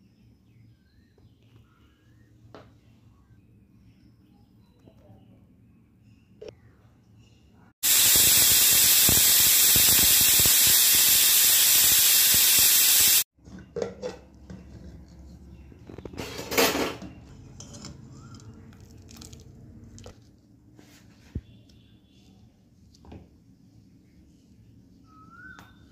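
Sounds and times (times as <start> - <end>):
pressure cooker hissing steam: 7.8 - 13.3.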